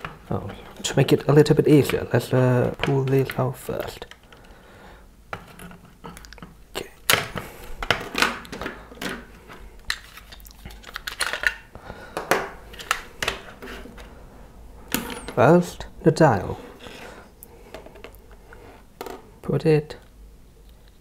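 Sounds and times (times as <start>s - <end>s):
hard plastic parts clicking: 0.0s - 4.6s, 5.3s - 14.1s.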